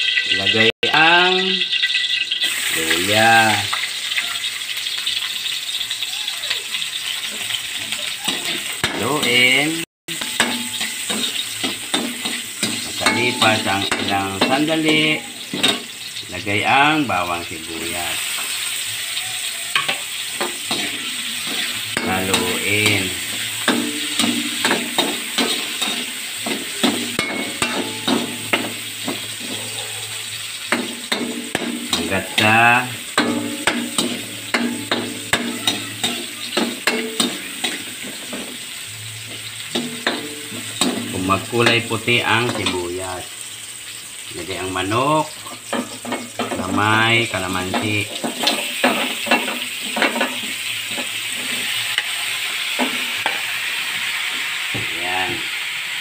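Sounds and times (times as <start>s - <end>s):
oil sizzling: 0.0s - 56.0s
metal spatula scraping wok: 7.0s - 16.2s, 17.1s - 43.0s, 45.4s - 54.5s
spoon knocking and scraping: 19.7s - 29.7s.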